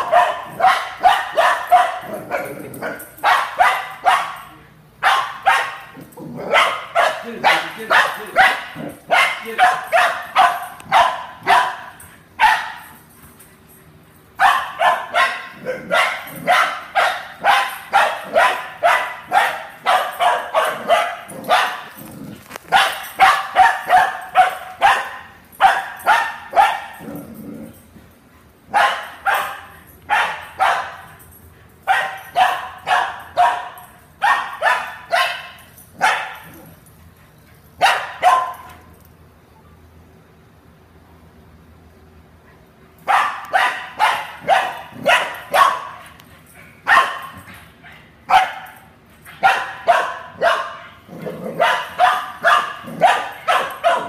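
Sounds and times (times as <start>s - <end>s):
young dog barking: 0.0s - 12.8s, 14.4s - 22.0s, 22.7s - 27.1s, 28.7s - 31.0s, 31.9s - 36.5s, 37.8s - 38.7s, 43.0s - 46.0s, 46.8s - 47.4s, 48.3s - 48.8s, 49.4s - 54.0s.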